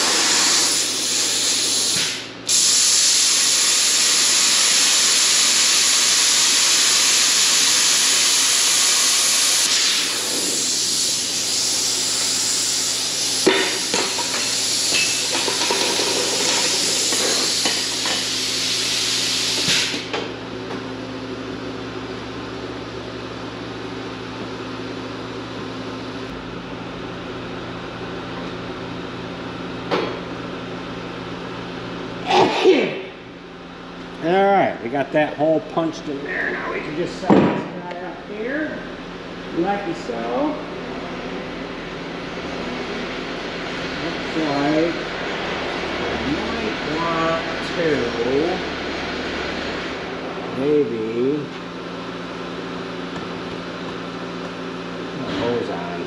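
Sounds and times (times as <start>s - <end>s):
plasma cutter hissing: 0.0s - 20.2s
steady hum: 5.8s - 56.0s.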